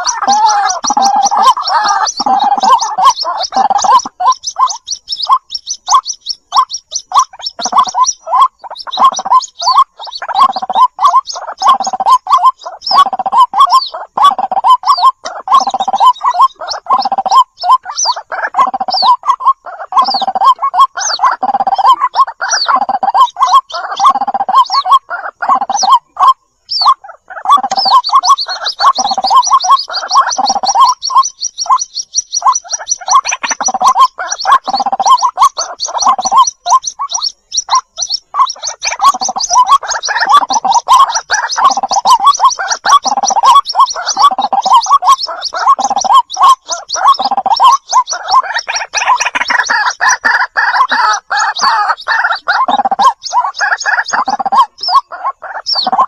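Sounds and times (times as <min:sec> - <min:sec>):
chicks calling: 0:00.0 - 0:56.0.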